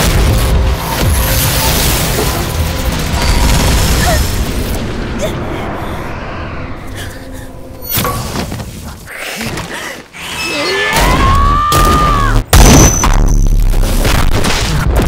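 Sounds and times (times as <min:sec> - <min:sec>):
low rumble: 0:00.1 - 0:09.1
whooshes: 0:03.2 - 0:09.1.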